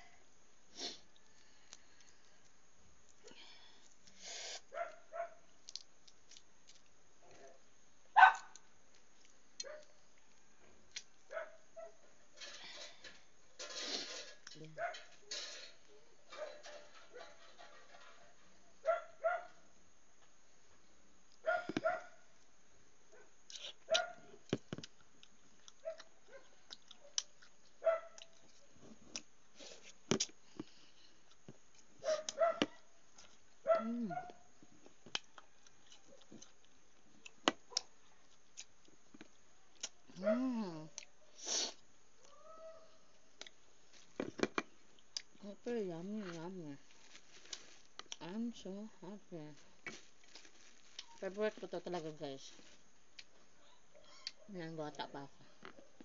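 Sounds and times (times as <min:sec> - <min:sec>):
dog barking: 0:04.7 - 0:05.4, 0:08.2 - 0:08.6, 0:09.6 - 0:09.9, 0:11.3 - 0:12.0, 0:14.8 - 0:15.2, 0:18.8 - 0:19.6, 0:21.4 - 0:22.2, 0:23.9 - 0:24.3, 0:25.8 - 0:27.2, 0:27.8 - 0:28.2, 0:32.0 - 0:32.9, 0:33.6 - 0:34.4, 0:40.2 - 0:40.5
dog yipping: 0:08.2 - 0:08.5, 0:32.0 - 0:32.8
smacking and chewing: 0:23.5 - 0:33.6, 0:34.8 - 0:40.0.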